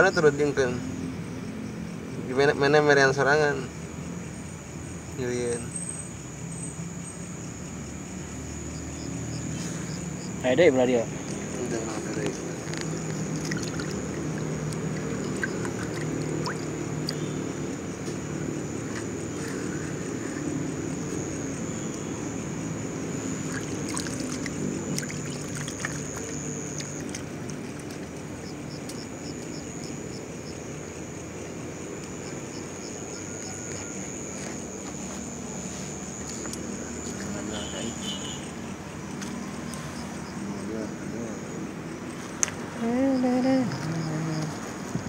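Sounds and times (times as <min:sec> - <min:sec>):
night insects droning: 0:00.0 - 0:45.0
low motor-like hum: 0:12.8 - 0:22.1.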